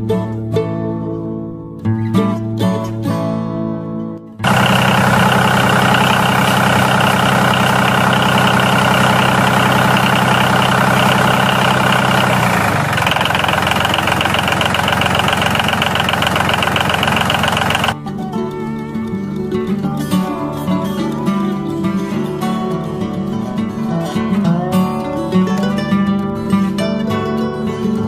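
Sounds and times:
tractor engine running: 4.4 - 18.0.

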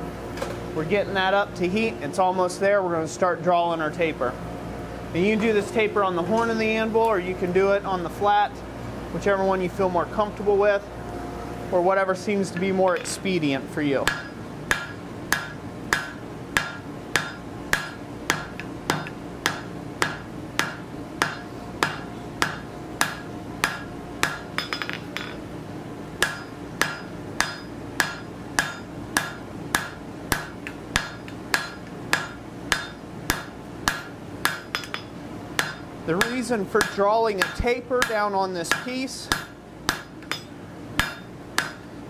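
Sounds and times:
hammer striking steel on anvil: 14.0 - 25.4, 26.2 - 41.9.

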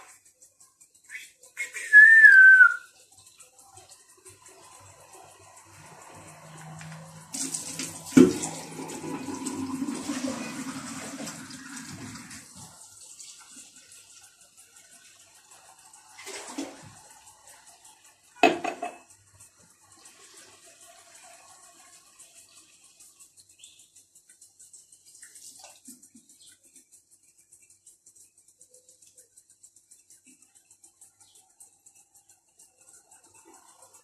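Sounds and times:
water running from tap: 1.1 - 26.8
vessel clattering: 18.4 - 19.1.

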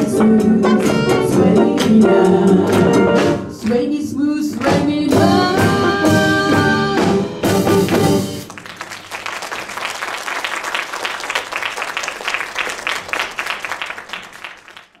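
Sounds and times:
audience applause: 7.9 - 15.0.

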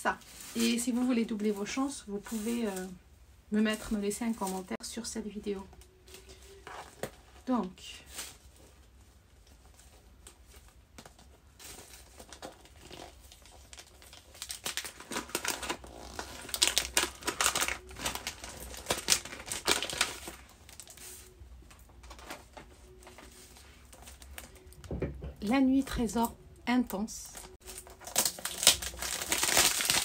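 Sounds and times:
paper crinkling and tearing: 9.6 - 21.4, 27.3 - 30.0.

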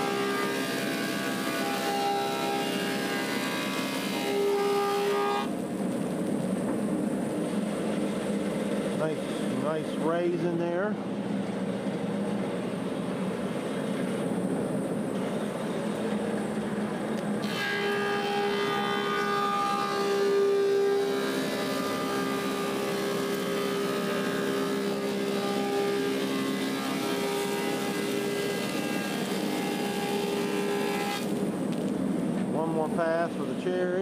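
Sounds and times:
planer cutting whine: 0.0 - 5.6, 17.2 - 31.9
planer running: 0.0 - 6.9, 17.4 - 31.9.

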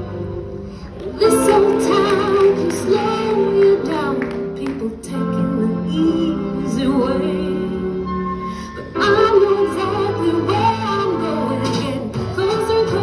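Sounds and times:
woman singing with instrumental backing: 1.0 - 13.0.

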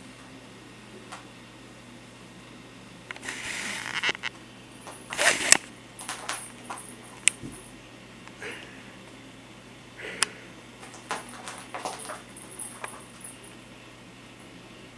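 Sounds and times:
faint metallic jingle: 6.0 - 7.8, 10.8 - 13.6.

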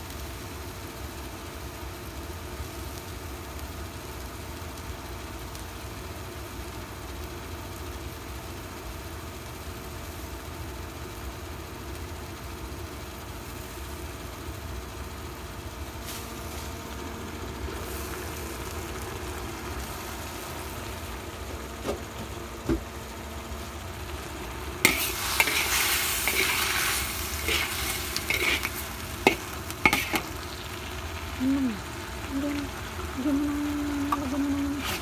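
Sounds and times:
food sizzling in a pan: 0.0 - 35.0
steady low hum: 9.6 - 35.0.

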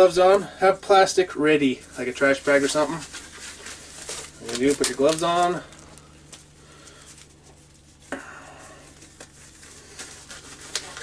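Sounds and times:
faint steady hum: 0.0 - 11.0
gloves rustling and clicking: 2.0 - 8.0.

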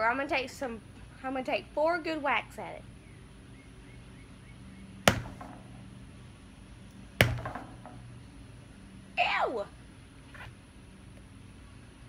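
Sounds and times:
metal mallet whacking watermelon: 5.1 - 5.8, 7.2 - 8.1.

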